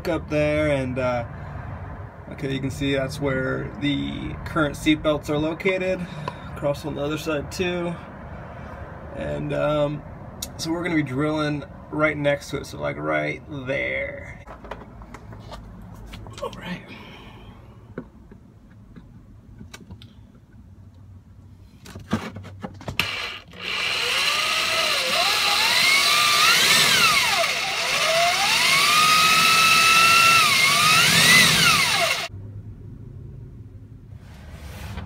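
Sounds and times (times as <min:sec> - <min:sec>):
cordless drill boring through metal: 0:23.0 - 0:32.3.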